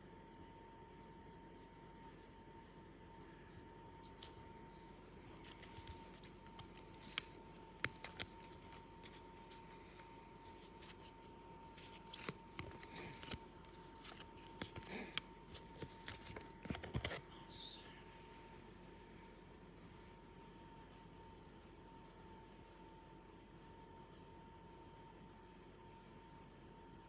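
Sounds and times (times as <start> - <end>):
faint high hum: 0.0 - 27.0
cards clicking and rustling: 4.0 - 17.2.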